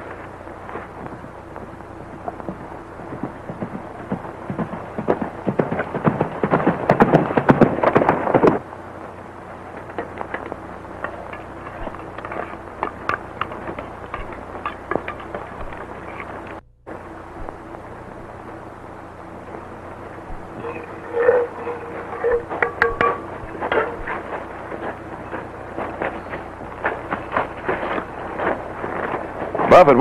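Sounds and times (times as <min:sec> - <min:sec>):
film soundtrack hiss: 0:00.0 - 0:30.0
horses galloping: 0:00.0 - 0:30.0
scattered knocks: 0:21.8 - 0:26.0.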